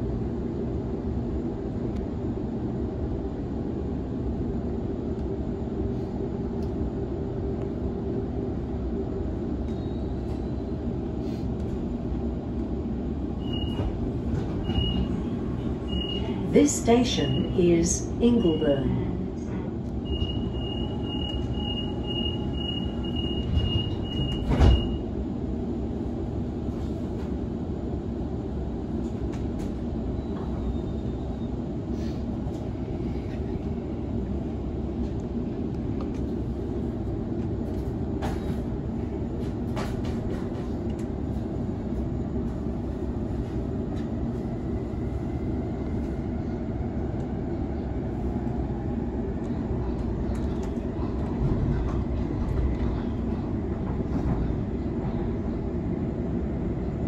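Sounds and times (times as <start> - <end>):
train carriage rumble and hum: 0.0 - 57.0
door warning beeps: 15.9 - 16.4, 20.0 - 25.0.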